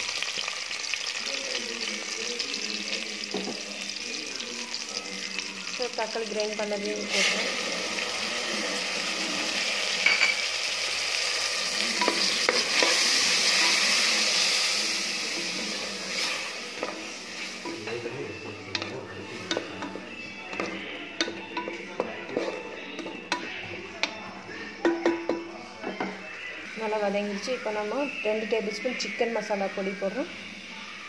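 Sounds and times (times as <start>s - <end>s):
tomato sizzling in hot oil: 0.0s - 22.6s
spatula scraping and knocking pot: 16.1s - 24.2s.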